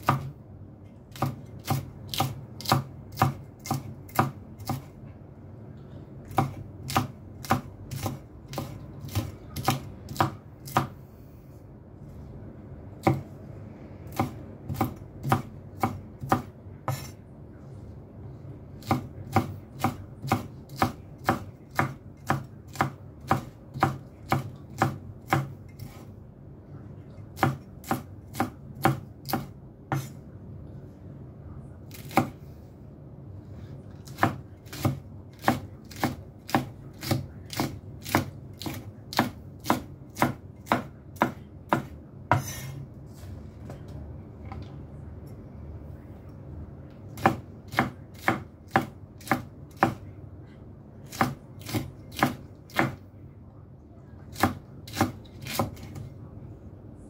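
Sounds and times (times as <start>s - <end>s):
knife chopping on cutting board: 0.0s - 0.3s, 1.1s - 4.9s, 6.3s - 11.0s, 13.0s - 13.3s, 14.1s - 17.2s, 18.8s - 26.0s, 27.4s - 30.2s, 31.9s - 32.4s, 33.9s - 42.8s, 47.2s - 50.0s, 51.1s - 53.0s, 54.3s - 56.0s.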